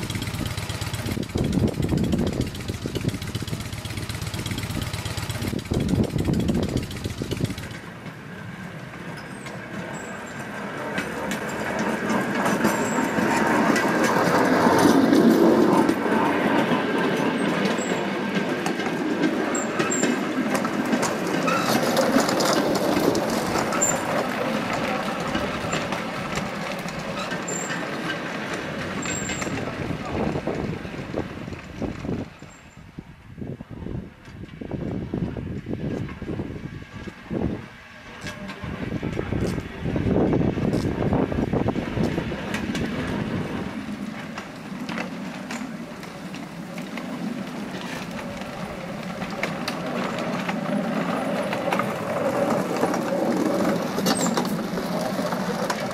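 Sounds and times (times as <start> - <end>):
wind noise on microphone: 0.0 - 7.8, 28.8 - 44.2
rail trolley wheels rumbling and clicking: 0.0 - 55.9.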